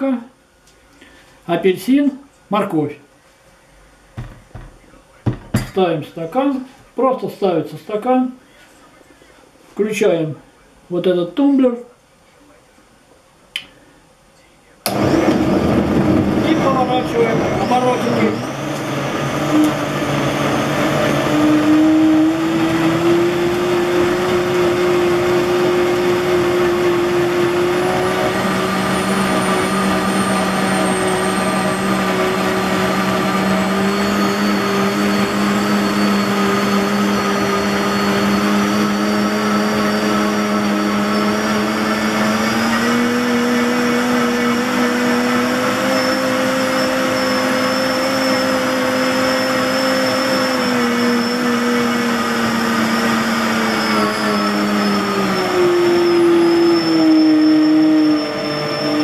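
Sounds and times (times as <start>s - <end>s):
blender motor whine: 14.9s - 59.0s.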